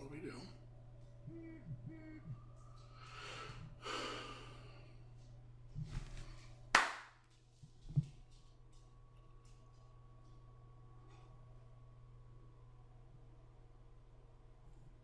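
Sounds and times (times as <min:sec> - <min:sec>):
steady low hum: 0:00.0 - 0:15.0
man breathing out: 0:03.0 - 0:05.0.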